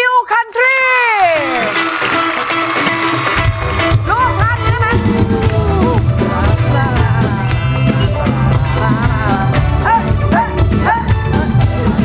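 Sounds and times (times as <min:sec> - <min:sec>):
upbeat music with drum beat: 0:01.7 - 0:12.0.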